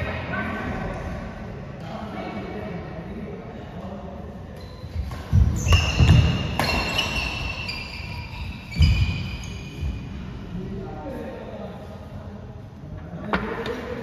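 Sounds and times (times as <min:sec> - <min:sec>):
shoe squeaks on court: 0:04.6 - 0:10.1.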